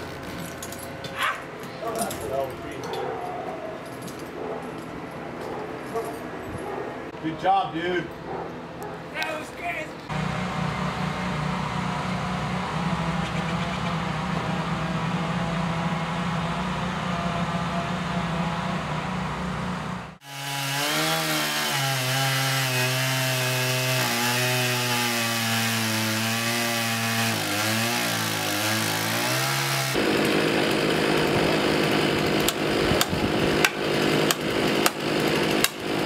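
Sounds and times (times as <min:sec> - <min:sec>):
steady engine drone: 0:10.0 - 0:20.2
chainsaw cutting wood: 0:10.1 - 0:36.0.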